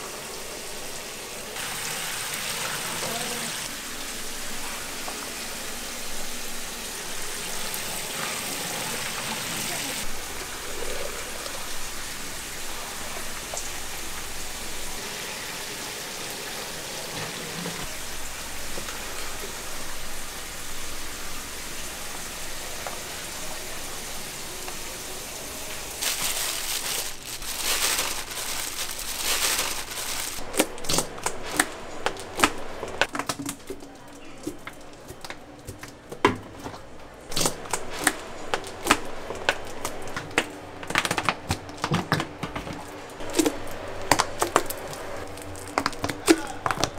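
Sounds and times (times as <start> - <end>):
steady hiss: 0.0 - 33.1.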